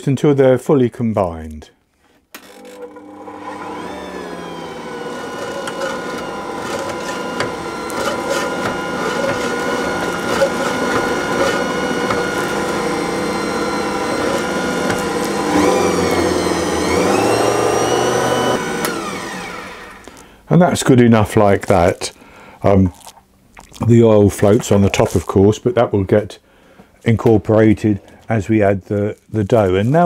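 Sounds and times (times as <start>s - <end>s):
stand mixer motor humming: 2.6s - 20.1s.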